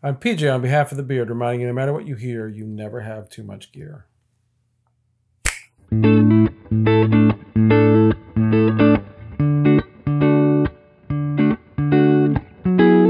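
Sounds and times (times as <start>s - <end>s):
sharp click: 5.4s - 5.8s
electric guitars playing choppy chords: 5.9s - 13.0s.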